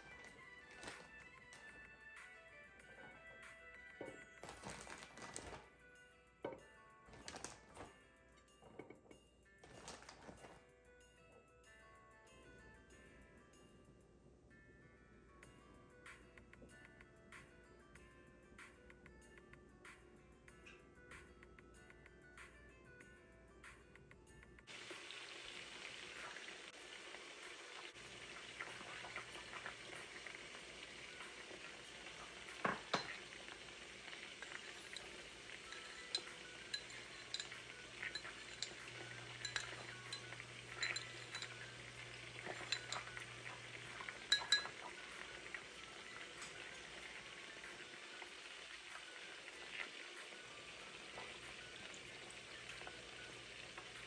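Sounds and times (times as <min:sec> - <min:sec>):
meat sizzling in a pot: 0:24.7 - 0:54.0
metal spoon clinking: 0:32.6 - 0:44.9.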